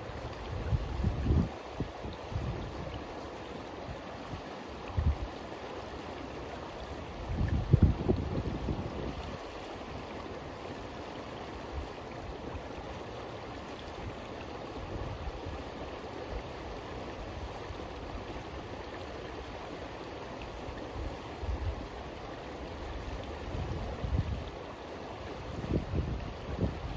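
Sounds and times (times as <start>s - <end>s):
river water rushing: 0.0s - 26.9s
wind on microphone: 0.5s - 2.9s, 7.2s - 9.4s, 23.4s - 24.5s, 25.5s - 26.9s.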